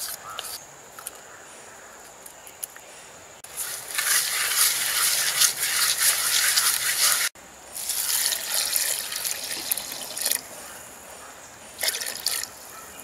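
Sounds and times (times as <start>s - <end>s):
hands mixing onions in a pot: 3.4s - 10.4s
liquid pouring into a pot: 7.8s - 10.4s.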